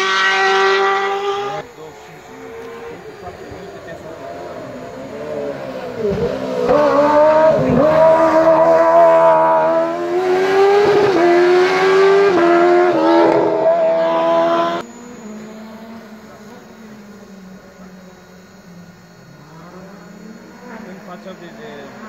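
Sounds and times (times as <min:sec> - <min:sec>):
race car engine revving: 0:00.0 - 0:22.0
faint steady hum: 0:14.8 - 0:22.0.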